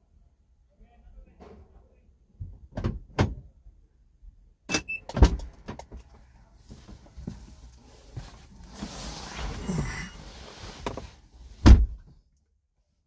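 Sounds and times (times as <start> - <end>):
rustling: 6.6 - 11.6.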